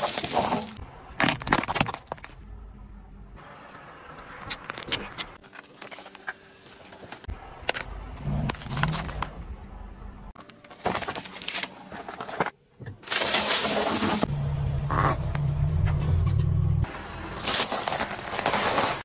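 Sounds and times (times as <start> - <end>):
tyre crushing objects: 17.3 - 19.0.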